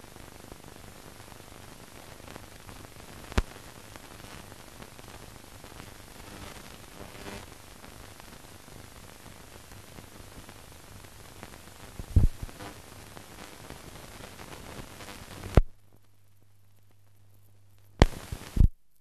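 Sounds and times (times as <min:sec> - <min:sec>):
film soundtrack hiss: 0:00.0 - 0:19.0
sharp pop: 0:12.0 - 0:12.5, 0:18.0 - 0:18.7.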